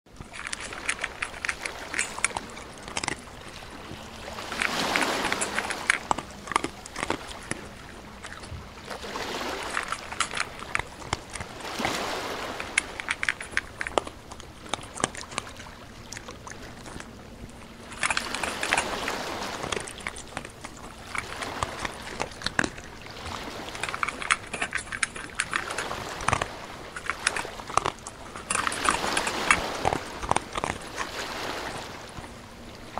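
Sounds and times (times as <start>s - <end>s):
dog splashing in puddle: 0.3s - 15.1s.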